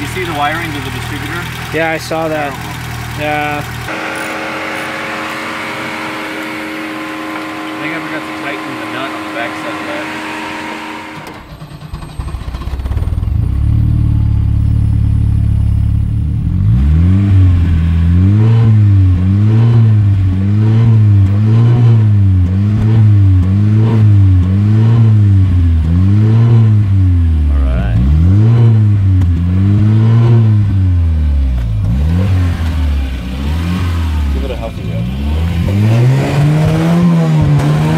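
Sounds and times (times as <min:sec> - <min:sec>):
car engine idling and revving: 0:00.0 - 0:37.9.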